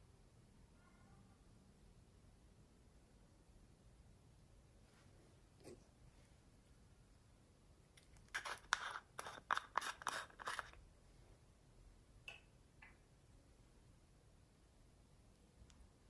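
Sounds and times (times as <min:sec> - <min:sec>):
plastic pot clicks and scrapes: 0:08.3 - 0:10.8.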